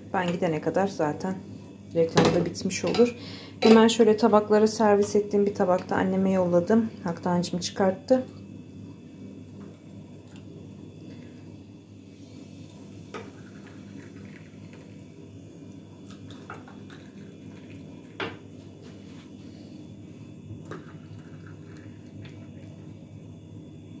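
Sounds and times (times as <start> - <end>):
tea pouring into glass cups: 13.2 - 15.1, 16.0 - 18.2, 20.7 - 22.9.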